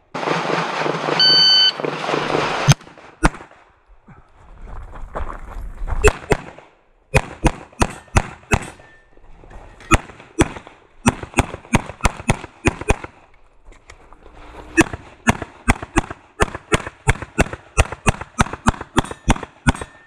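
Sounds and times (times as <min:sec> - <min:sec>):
pistol shots: 0:06.1 - 0:08.8, 0:09.9 - 0:13.1, 0:14.8 - 0:20.0.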